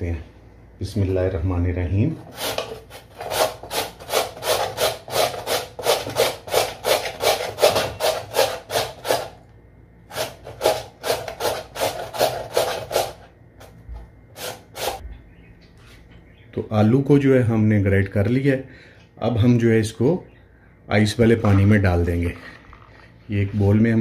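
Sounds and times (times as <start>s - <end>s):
potato grating on metal grater: 2.2s - 9.4s, 10.1s - 13.3s, 14.4s - 15.0s.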